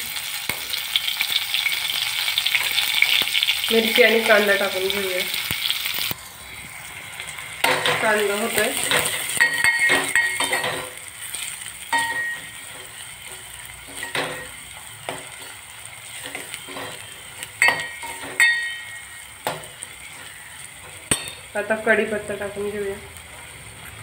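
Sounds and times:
onions sizzling in hot oil: 0:00.0 - 0:24.0
ladle scraping and clinking pot: 0:08.8 - 0:11.0, 0:16.2 - 0:21.5.

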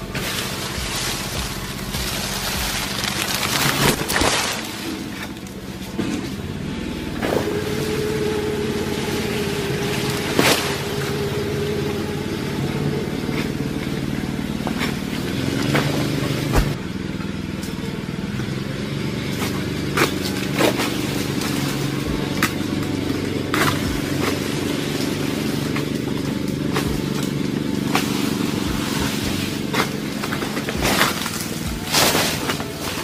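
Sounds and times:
small engine running: 0:00.0 - 0:33.0.

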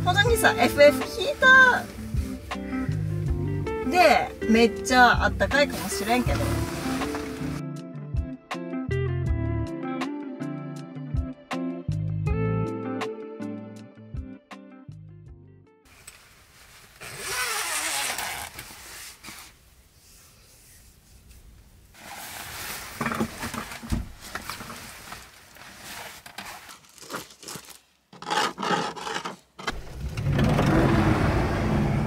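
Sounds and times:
sleeping bag fabric rustling: 0:05.5 - 0:07.6, 0:15.9 - 0:19.6, 0:21.9 - 0:27.8.

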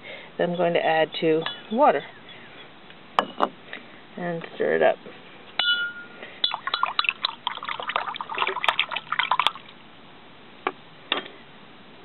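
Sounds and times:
spoon clinking against glass: 0:05.6 - 0:07.2
water sloshing: 0:06.4 - 0:09.8.

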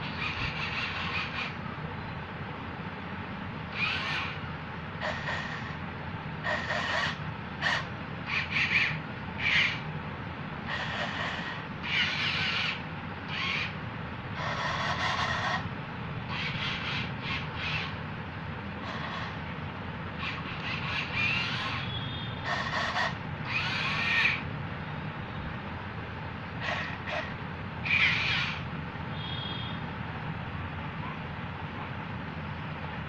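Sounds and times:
toy gear motors humming: 0:00.0 - 0:01.6, 0:03.7 - 0:05.8, 0:06.4 - 0:09.9, 0:10.6 - 0:13.8, 0:14.4 - 0:15.7, 0:16.3 - 0:18.0, 0:18.8 - 0:19.5, 0:20.1 - 0:24.5, 0:26.6 - 0:28.6.

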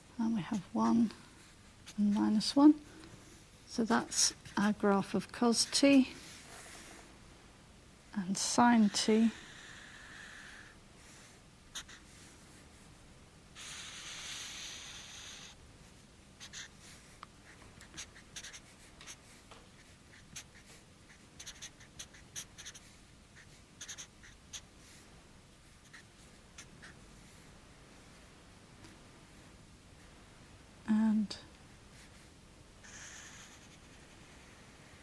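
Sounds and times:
marker pen drawing on paper: 0:00.5 - 0:02.7, 0:11.7 - 0:12.9, 0:13.8 - 0:16.8, 0:17.5 - 0:25.0, 0:25.8 - 0:28.3, 0:31.9 - 0:34.5.

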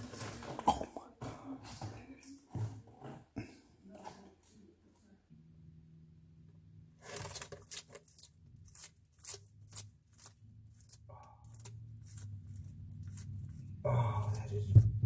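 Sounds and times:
lizard crunching insect shell: 0:07.0 - 0:15.0.

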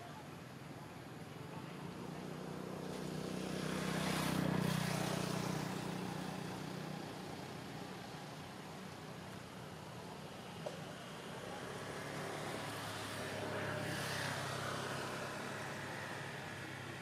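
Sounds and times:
vehicle engine passing by: 0:01.9 - 0:08.0.

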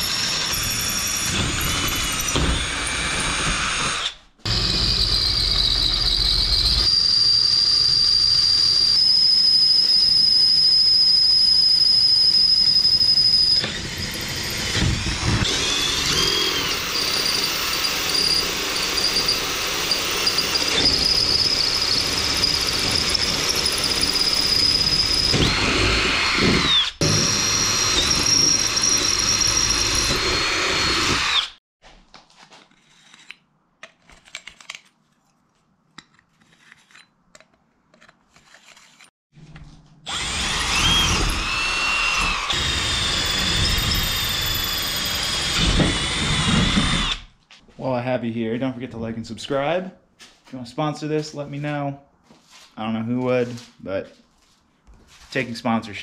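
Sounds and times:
drill bit squealing through metal: 0:00.0 - 0:31.6, 0:40.1 - 0:47.3.

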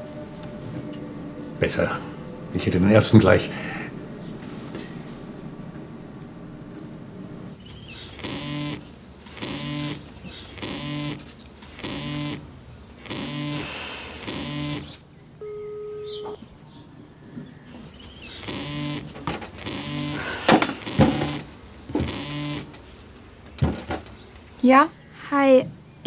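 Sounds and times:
mobile phone vibrating on table: 0:08.0 - 0:16.4, 0:18.4 - 0:22.8
short steady beep: 0:13.2 - 0:16.4.

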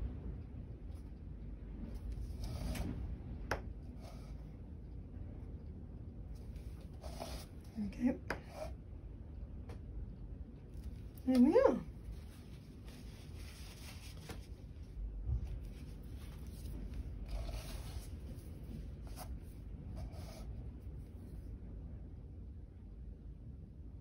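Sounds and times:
canvas rustling and scraping: 0:11.9 - 0:19.5.

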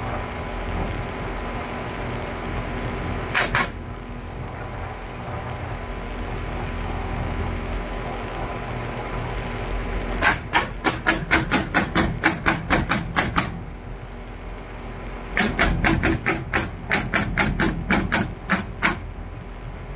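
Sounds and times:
pneumatic nail gun shots: 0:03.3 - 0:03.8, 0:10.2 - 0:13.6, 0:15.4 - 0:19.1.

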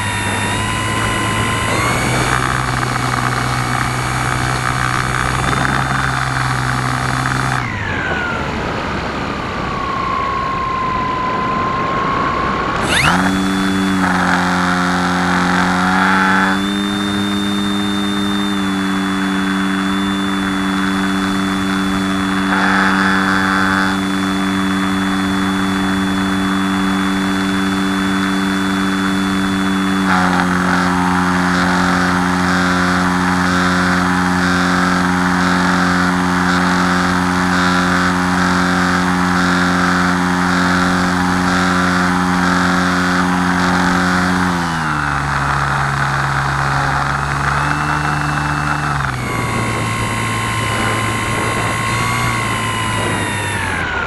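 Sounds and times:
model plane motor and propeller: 0:00.0 - 0:54.0
wind rush: 0:49.2 - 0:54.0.

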